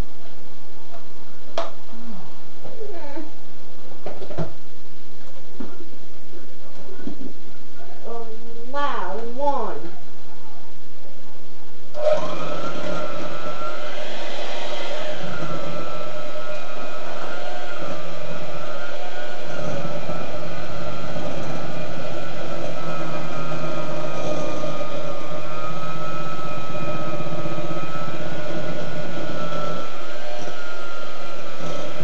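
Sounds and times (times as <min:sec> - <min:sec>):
electric hand mixer whining: 0:12.0 - 0:32.0.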